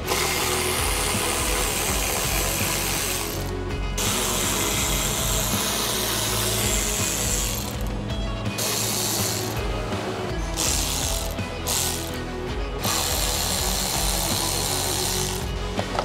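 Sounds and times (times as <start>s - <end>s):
electric ratchet spinning: 0.0s - 9.8s, 10.4s - 16.0s.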